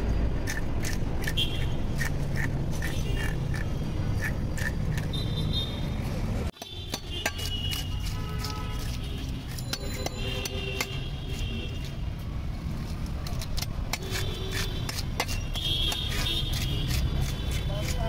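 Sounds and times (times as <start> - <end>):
blade cutting fish: 13.3 - 18.0.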